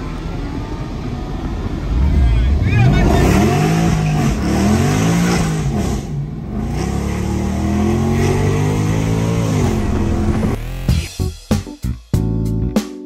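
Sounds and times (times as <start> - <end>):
car engine accelerating hard: 1.2 - 11.0.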